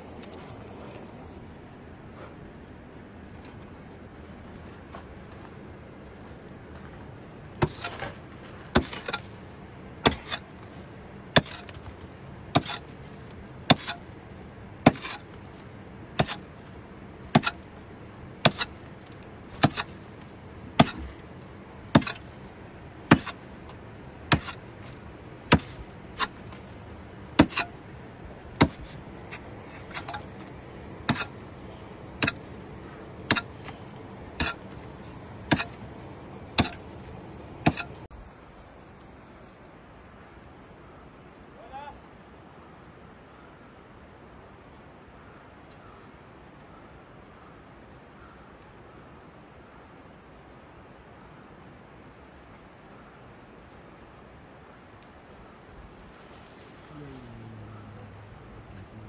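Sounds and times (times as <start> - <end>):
hammer striking rock: 7.6 - 8.1, 8.7 - 9.3, 10.0 - 10.5, 11.4 - 11.8, 12.5 - 13.0, 13.7 - 14.0, 14.8 - 15.3, 16.2 - 16.5, 17.3 - 17.7, 18.4 - 18.8, 19.5 - 20.0, 20.8 - 21.2, 21.9 - 22.3, 23.1 - 23.5, 24.3 - 24.7, 25.5 - 26.6, 27.4 - 27.8, 28.6 - 30.4, 31.1 - 31.4, 32.2 - 32.5, 33.3 - 34.7, 35.5 - 35.8, 36.6 - 36.9, 37.6 - 38.0.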